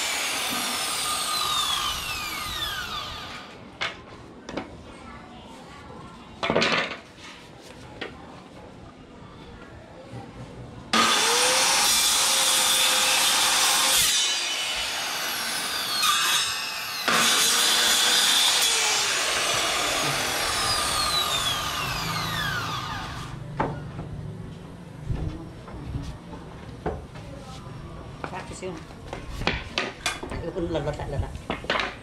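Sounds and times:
circular saw cutting wood: 0.0 - 3.6, 10.9 - 23.4.

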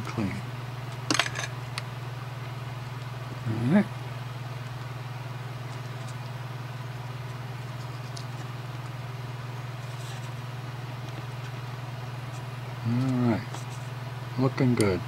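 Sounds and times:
machine humming: 0.0 - 15.0
small metal scrapes: 9.7 - 10.4.

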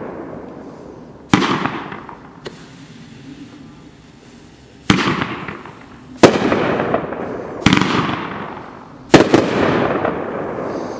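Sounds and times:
sharp bangs with rumble: 1.3 - 2.4, 4.8 - 10.6
firework shells bursting: 1.3 - 10.9.

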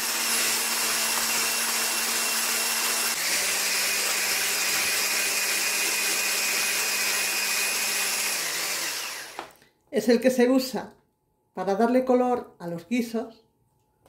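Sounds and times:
electric hand blender whisking: 0.0 - 9.6.

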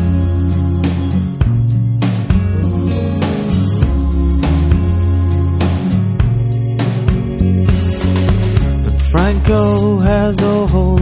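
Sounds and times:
bass notes: 0.0 - 11.0
guitar: 0.0 - 11.0.

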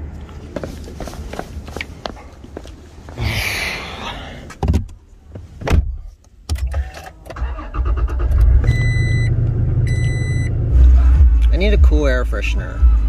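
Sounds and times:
high dashboard warning chime: 8.6 - 10.6.

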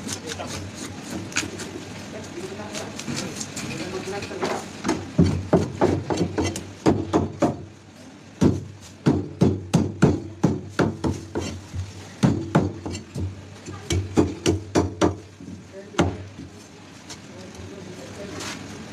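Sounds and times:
scraping fish scales: 0.0 - 2.0.

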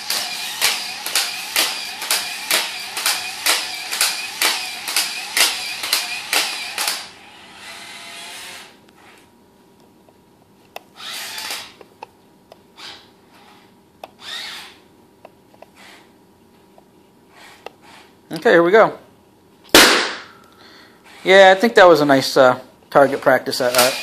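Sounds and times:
robot legs clacking: 0.0 - 7.0
robot motors whirring: 0.0 - 8.8, 11.0 - 11.7, 14.2 - 14.8.

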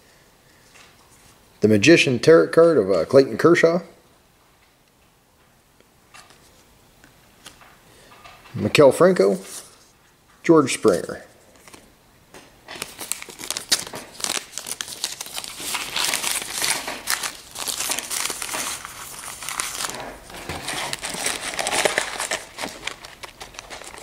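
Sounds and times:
wrapper crackling and rustling: 12.7 - 24.0.

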